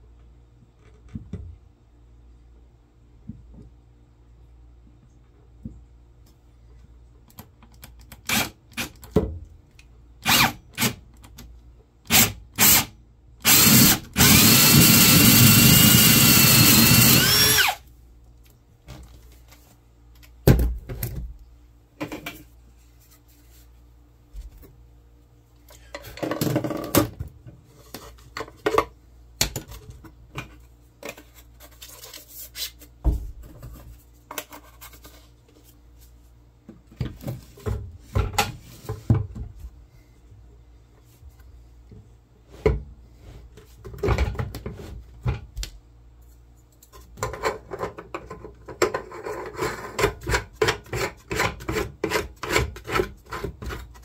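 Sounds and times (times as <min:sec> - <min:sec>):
power drill whining: 0:12.1 - 0:17.8
rubbing and handling noises: 0:22.4 - 0:24.8, 0:29.7 - 0:39.1.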